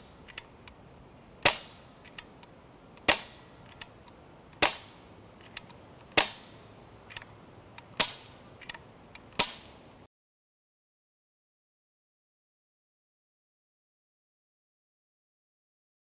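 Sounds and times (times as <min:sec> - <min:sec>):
air rifle shots cracking: 0:01.4 - 0:01.8, 0:03.0 - 0:03.6, 0:04.6 - 0:05.0, 0:06.1 - 0:07.2, 0:07.9 - 0:09.8.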